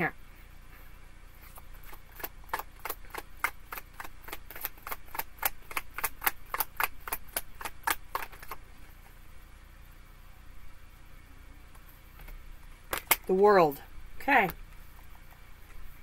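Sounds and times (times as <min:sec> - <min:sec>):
cards being shuffled: 0:01.4 - 0:08.6, 0:12.2 - 0:13.3.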